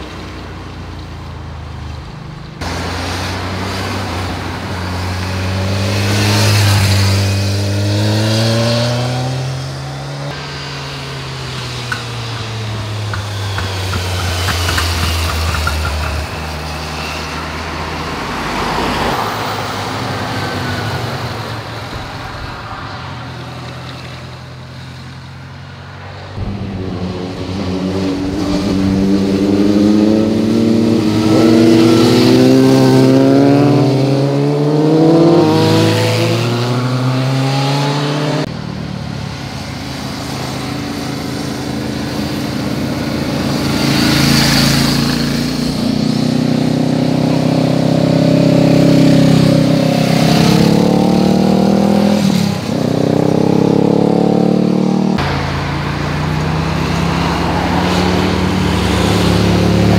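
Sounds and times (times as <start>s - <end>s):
motorcycles accelerating: 2.5s - 59.9s.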